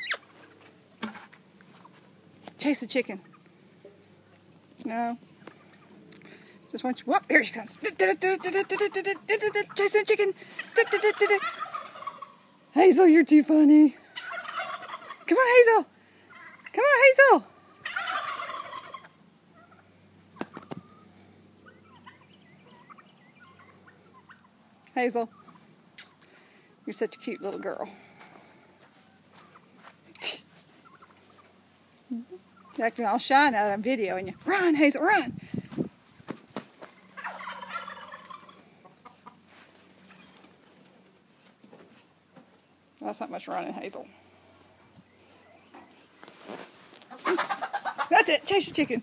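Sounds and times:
poultry rattly call: 10.5 - 12.4, 14.2 - 15.2, 17.8 - 19.8, 36.9 - 41.1
chickens clucking faintly: 36.2 - 49.0.

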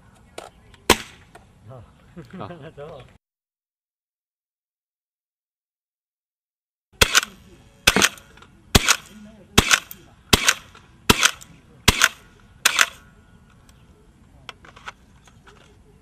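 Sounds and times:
rifle shots with echo: 7.0 - 13.0.

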